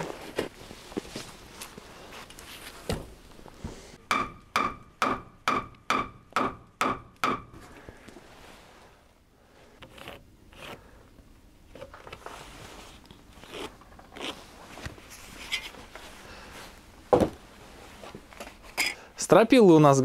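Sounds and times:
rustling: 0:00.0 - 0:04.0, 0:11.8 - 0:18.8.

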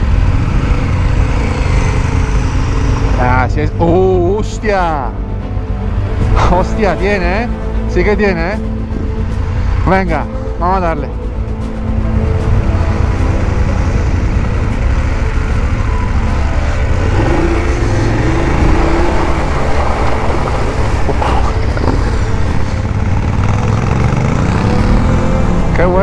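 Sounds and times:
motorcycle engine: 0:00.0 - 0:04.2, 0:11.2 - 0:26.0.

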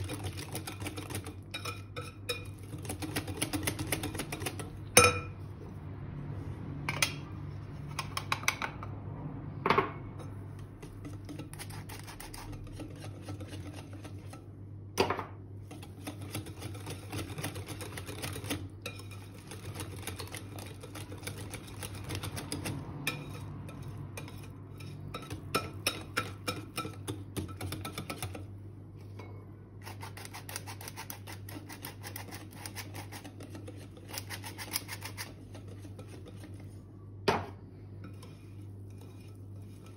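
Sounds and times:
whisk knocking against bowl: 0:00.0 - 0:05.3, 0:10.7 - 0:14.5, 0:15.6 - 0:28.5
whisk ticking against glass bowl: 0:00.0 - 0:05.3, 0:15.7 - 0:28.4.

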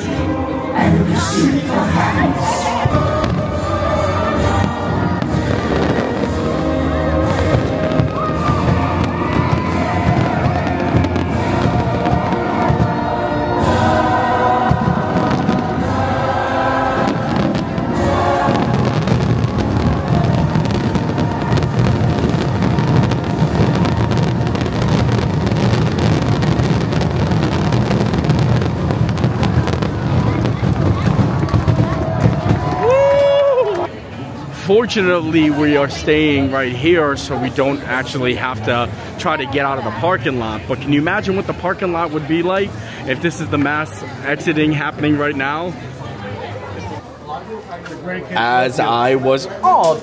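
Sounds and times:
loud music: 0:00.0 - 0:33.0
fireworks bangs and pops: 0:04.3 - 0:13.0, 0:14.7 - 0:15.9, 0:17.0 - 0:33.2.

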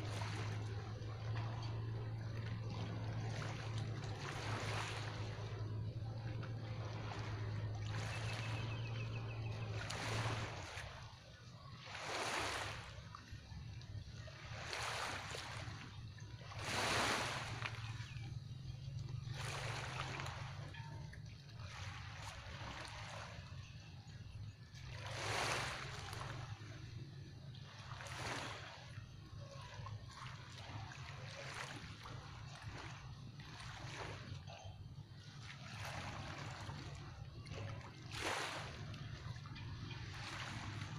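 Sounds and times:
steady low rumble: 0:00.0 - 0:11.7
distant boat engine hum: 0:00.0 - 0:40.9
small waves washing in: 0:00.0 - 0:40.9.

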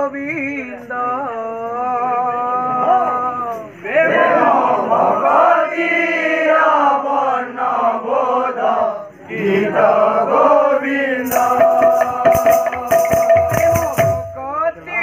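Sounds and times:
voices chanting: 0:03.8 - 0:14.2.

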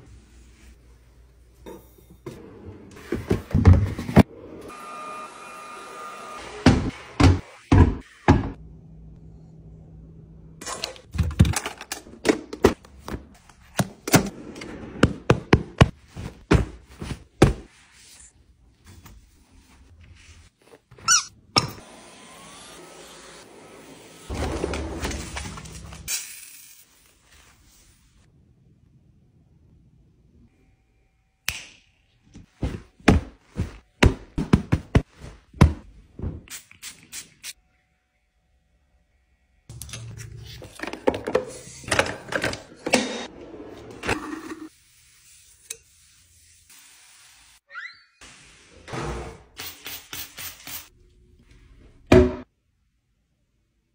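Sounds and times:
short squeak: 0:21.0 - 0:21.4.

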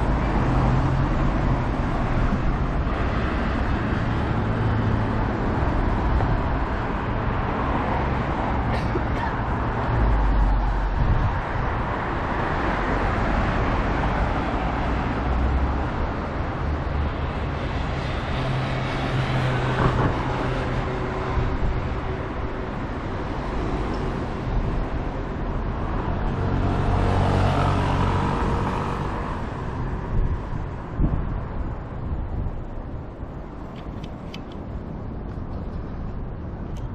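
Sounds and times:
passing vehicle engine hum: 0:00.0 - 0:36.9
road traffic noise: 0:00.0 - 0:36.9.

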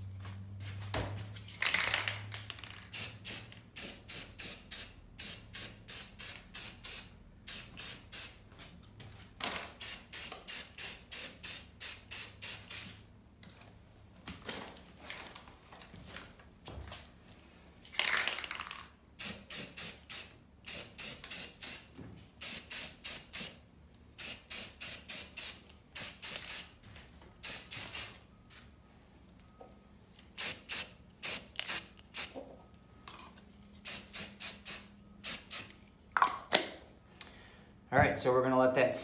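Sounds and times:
aerosol can spraying: 0:09.8 - 0:13.0, 0:19.2 - 0:23.6, 0:24.2 - 0:26.7, 0:27.4 - 0:28.1, 0:30.4 - 0:32.4, 0:33.8 - 0:35.7.

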